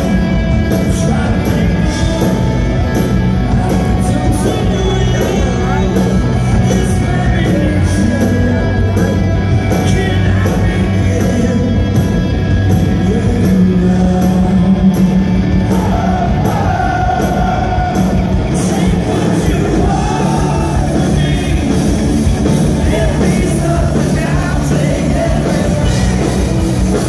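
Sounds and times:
rock band playing live: 0.0s - 27.0s
person singing: 3.5s - 12.1s.

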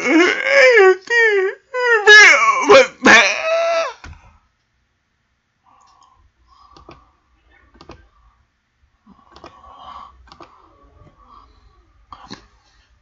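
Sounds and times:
computer mouse clicks: 6.7s - 7.0s, 7.7s - 8.1s, 9.3s - 9.6s, 10.2s - 10.6s.

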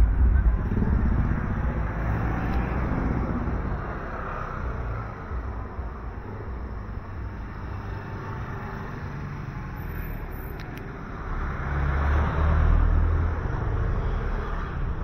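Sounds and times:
truck engine rumbling past: 0.0s - 10.3s
street traffic: 0.0s - 15.0s.

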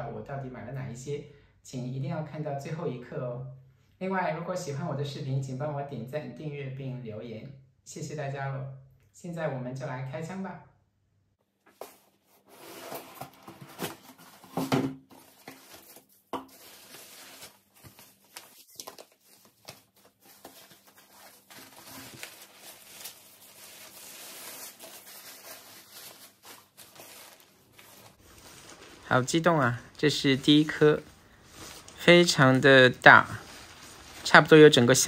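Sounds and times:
packing paper rustling: 11.8s - 35.0s
cardboard and tape tearing: 12.4s - 29.0s.

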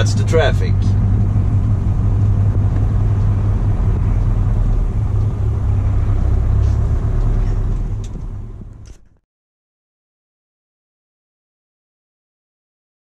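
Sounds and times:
diesel truck engine rumbling: 0.0s - 9.2s.

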